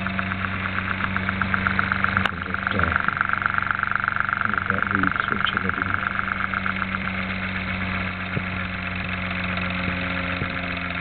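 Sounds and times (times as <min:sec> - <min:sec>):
high motor whine: 0:00.0 - 0:11.0
motor humming: 0:00.0 - 0:11.0.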